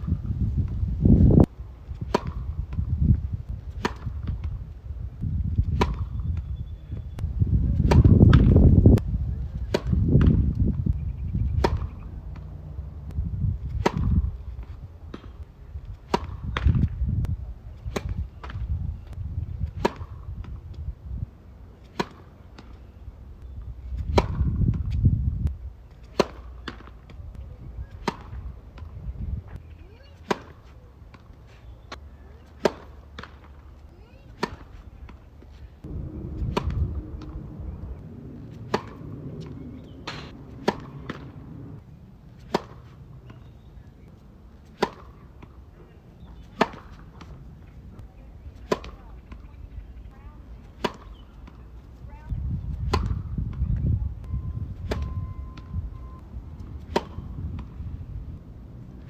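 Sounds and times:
tennis ball bouncing: 1.9s - 2.9s, 3.5s - 4.6s, 5.6s - 6.5s, 7.8s - 9.0s, 9.6s - 10.7s, 11.4s - 17.0s, 19.6s - 20.8s, 21.8s - 22.9s, 24.0s - 25.0s, 25.9s - 27.2s, 27.9s - 29.0s, 30.2s - 41.8s, 42.4s - 49.5s, 50.4s - 51.8s, 52.8s - 53.7s, 54.8s - 55.1s, 56.6s - 57.9s
tennis racket hitting ball: 1.9s - 2.9s, 3.7s - 4.6s, 5.6s - 6.2s, 7.8s - 8.7s, 9.6s - 10.5s, 11.6s - 12.5s, 13.1s - 17.0s, 19.6s - 20.6s, 21.8s - 22.8s, 24.0s - 25.0s, 26.0s - 27.2s, 27.9s - 28.9s, 30.2s - 31.4s, 32.4s - 35.2s, 35.8s - 41.8s, 42.4s - 45.6s, 46.3s - 47.6s, 48.6s - 49.4s, 50.4s - 51.6s, 52.8s - 53.6s, 54.8s - 55.1s, 56.6s - 57.8s
low rumble: 35.8s - 41.9s.

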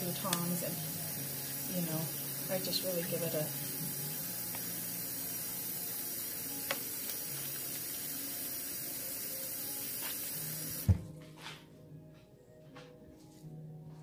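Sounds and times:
tap running into metal strainer: 3.8s - 4.7s, 6.6s - 7.8s.

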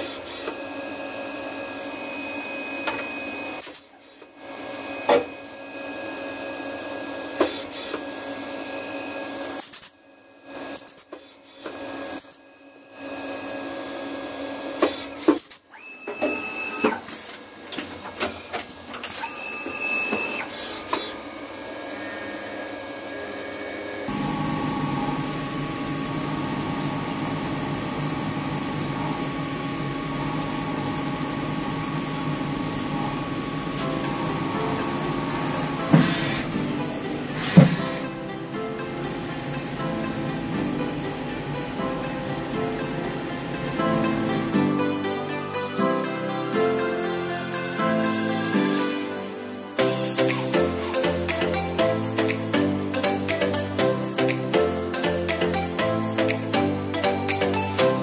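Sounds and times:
milling machine spindle whine: 19.2s - 44.5s.

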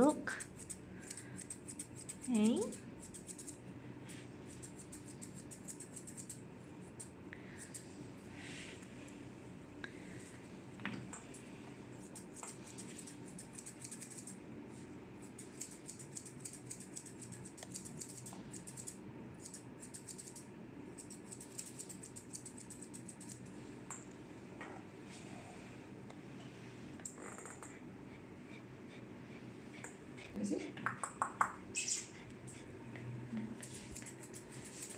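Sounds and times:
grooming scissors snipping fur: 0.0s - 3.6s, 4.5s - 7.9s, 12.0s - 14.4s, 15.2s - 23.5s, 33.6s - 34.9s.

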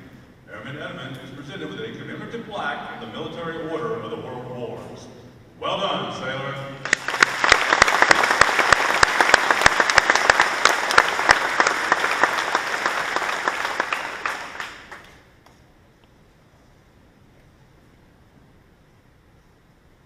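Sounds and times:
audience applauding: 6.8s - 15.2s
sharp close claps: 6.8s - 15.6s.

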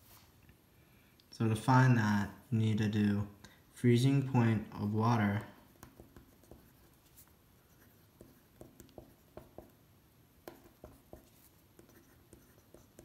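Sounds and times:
pencil writing on paper: 5.7s - 9.8s, 10.4s - 13.0s.

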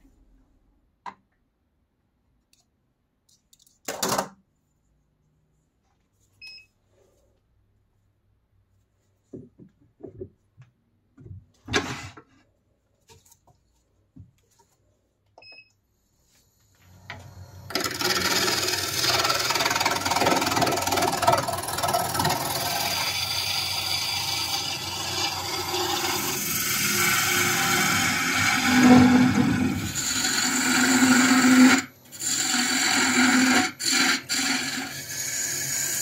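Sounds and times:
wood knocking and clunking: 9.3s - 11.5s
lathe spinning: 17.0s - 36.0s
gouge scraping spinning wood: 17.7s - 36.0s.

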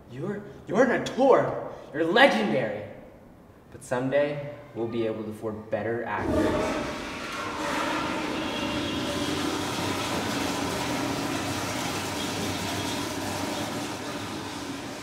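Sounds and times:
fan rushing noise: 6.2s - 15.0s.

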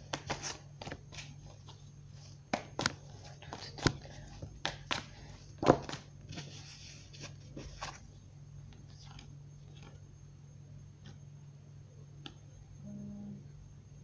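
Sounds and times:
cards shuffling: 0.0s - 8.1s, 8.7s - 10.0s
low steady hum: 0.0s - 14.0s.

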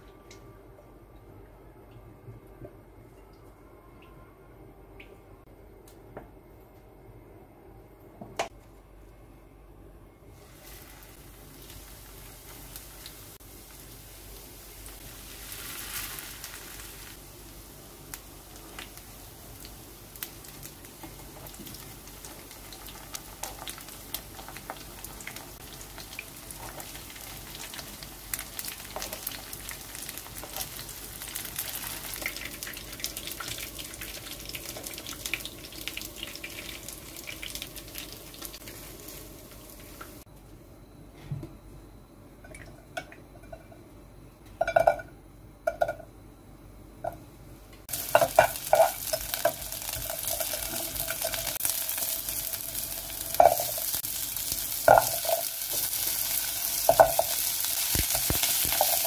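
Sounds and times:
shrimp frying in hot oil: 10.4s - 40.2s, 47.9s - 59.0s.

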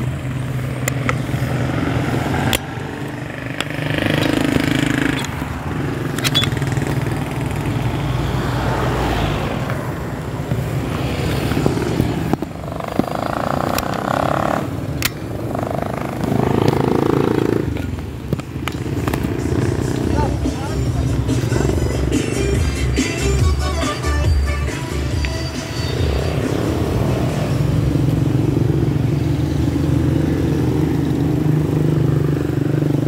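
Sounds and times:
motorcycle engines passing: 0.0s - 33.0s
sharp clicks and rattles: 2.5s - 5.4s, 6.0s - 7.2s.

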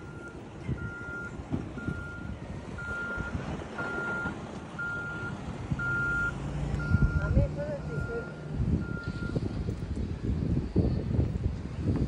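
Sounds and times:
reversing alarm beeping: 0.0s - 9.4s
low rumbling: 0.0s - 12.0s.

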